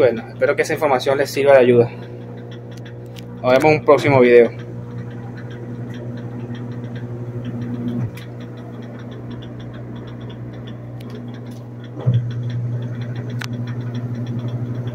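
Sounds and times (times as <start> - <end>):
light ticking: 0.0 - 14.9
washing machine motor hum: 0.0 - 14.9.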